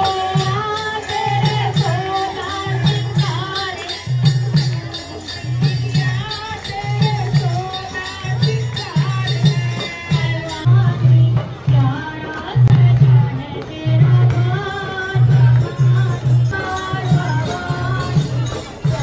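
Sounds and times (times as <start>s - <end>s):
devotional group singing: 0.0s - 10.7s
jingling percussion: 0.0s - 19.0s.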